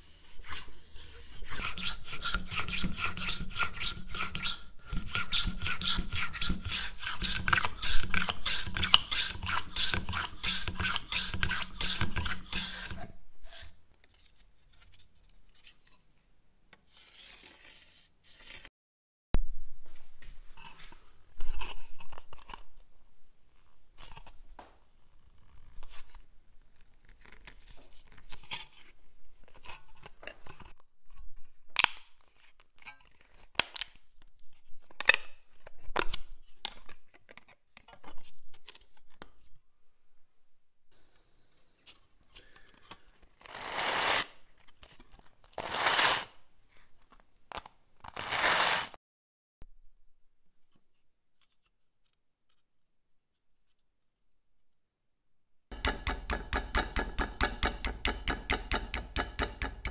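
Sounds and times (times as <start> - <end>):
metal rasping on sandpaper: 0.1 - 13.8
metal strip scraping and clicking: 1.5 - 13.6, 55.8 - 59.9.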